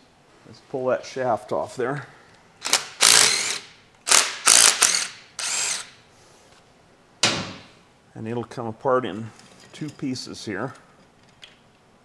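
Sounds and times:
cordless power driver whirring: 2.6 - 5.9
sharp knock: 7.2 - 7.7.

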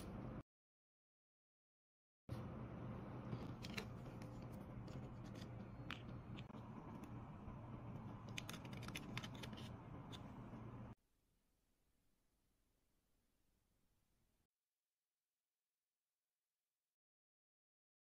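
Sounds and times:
steady low hum: 2.3 - 11.0.

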